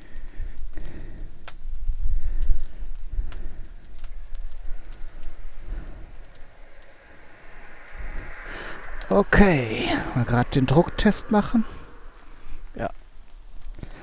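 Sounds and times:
fat popping and crackling: 0.0s - 6.9s, 12.4s - 14.0s
low rumble: 1.7s - 14.0s.

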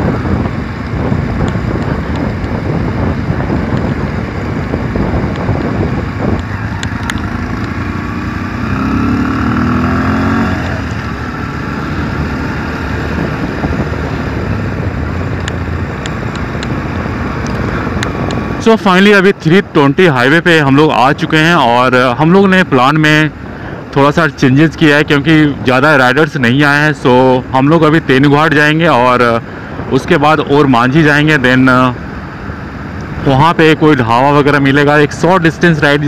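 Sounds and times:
motorcycle engine running: 0.0s - 19.0s
wind rush on microphone: 0.0s - 36.0s.

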